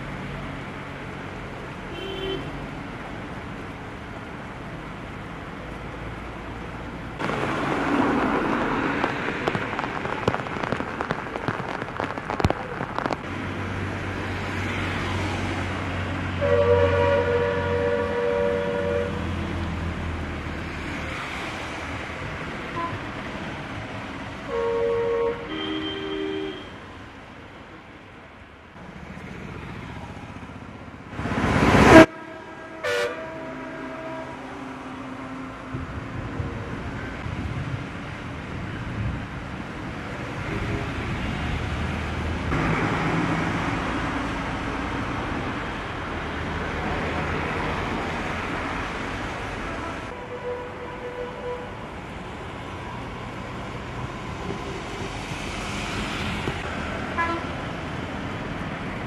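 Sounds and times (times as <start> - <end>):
sharp crackles: 7.2 - 13.4
rain hissing: 7.2 - 15.2
heavy rain pouring: 7.2 - 16.4, 35.1 - 50.2
vehicle swishing past on wet road: 7.2 - 16.4, 31.2 - 32.1, 40.3 - 50.0, 53.2 - 59.0
vehicle horn two-tone blast: 31.9 - 34.3.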